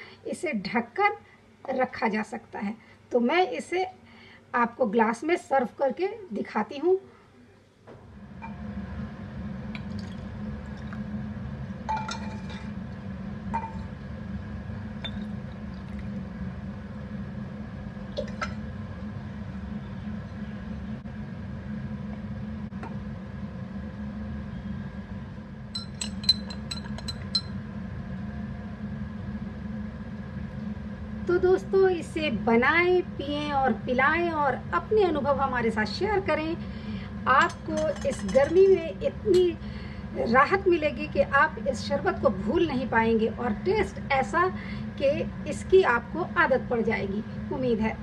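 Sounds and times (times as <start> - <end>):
steady low hum: 0.0 - 48.0
spoon clinking in a glass: 11.9 - 12.6, 15.0 - 15.3, 25.8 - 27.6
glassware taps: 13.6 - 13.8, 15.0 - 15.3, 25.8 - 27.5.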